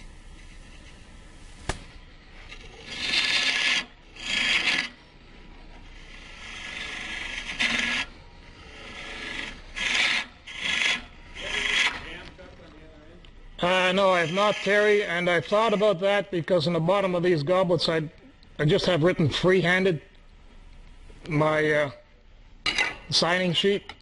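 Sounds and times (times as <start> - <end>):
lathe tool scraping wood: 2.3 - 12.2, 13.6 - 16.2.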